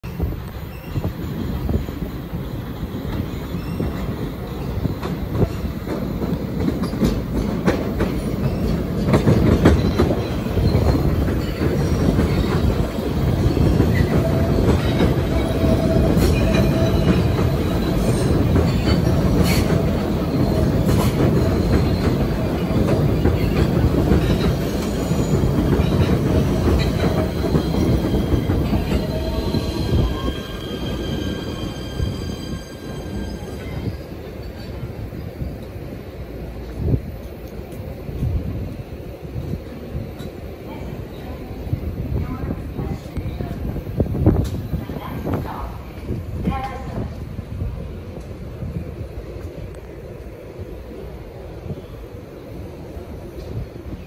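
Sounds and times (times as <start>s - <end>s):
train wheels rumbling on rail: 0.0s - 54.0s
high brake squeal: 3.3s - 4.1s, 27.4s - 34.7s
clacks over rail joints: 4.9s - 12.8s, 16.1s - 29.1s.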